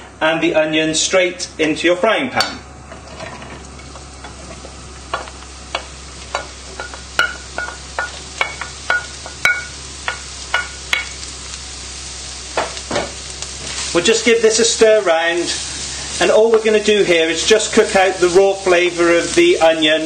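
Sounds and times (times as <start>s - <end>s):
food sizzling in a frying pan: 2.9s - 20.0s
spoon knocking on plate and pan: 5.1s - 11.1s.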